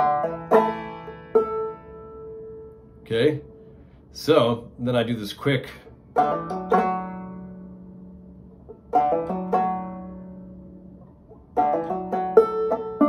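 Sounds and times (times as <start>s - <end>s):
banjo playing: 0.0s - 3.8s, 5.8s - 13.0s.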